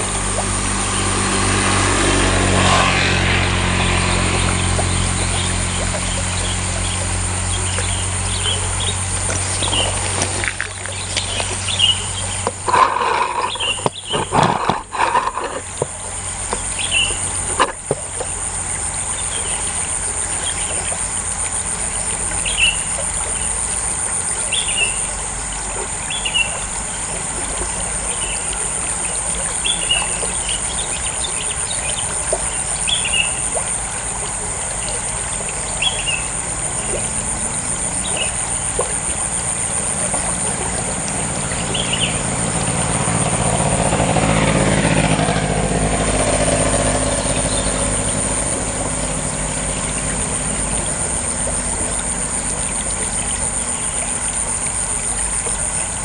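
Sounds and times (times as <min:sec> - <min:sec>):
high insect drone: 0:00.0 - 0:56.0
low engine hum: 0:00.0 - 0:56.0
bumps and rustles: 0:09.2 - 0:16.7.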